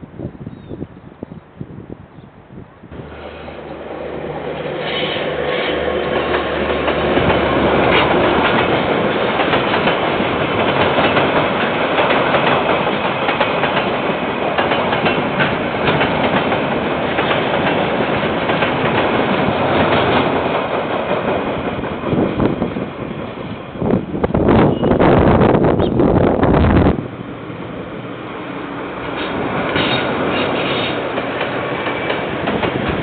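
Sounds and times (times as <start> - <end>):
locomotive engine drone: 2.8 - 12.4
train wheels clattering on rails: 3.7 - 23.6, 28.9 - 33.0.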